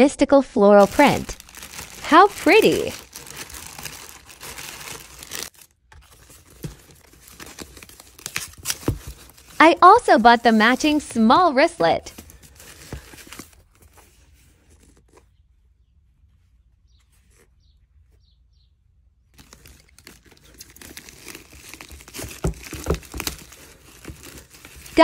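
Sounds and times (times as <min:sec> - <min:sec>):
sharp crackles: 0:00.8 - 0:05.6
packaging rustling and crinkling: 0:00.8 - 0:11.0, 0:12.1 - 0:15.3, 0:19.4 - 0:25.0.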